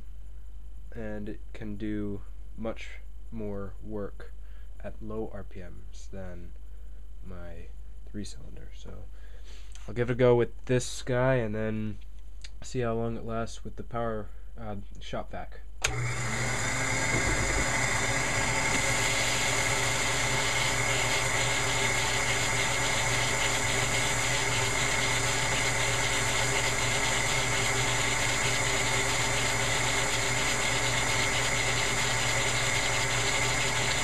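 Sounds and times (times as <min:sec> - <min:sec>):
shop vac running: 0:15.8 - 0:34.0.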